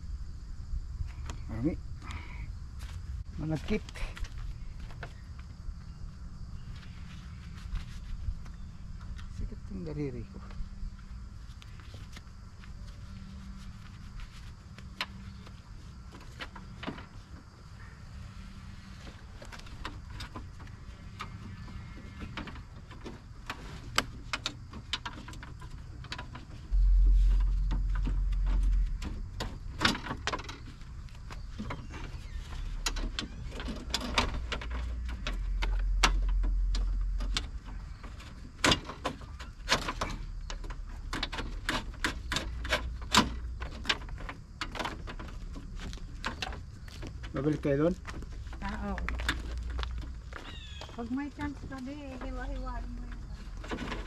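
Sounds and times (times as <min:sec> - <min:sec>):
low rumble: 0:26.6 - 0:38.6.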